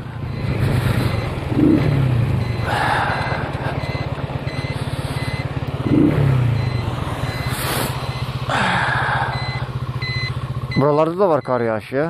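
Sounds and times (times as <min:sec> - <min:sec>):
motorcycle engine running: 0:00.0 - 0:12.0
faint short beep: 0:02.3 - 0:08.3, 0:09.3 - 0:11.7.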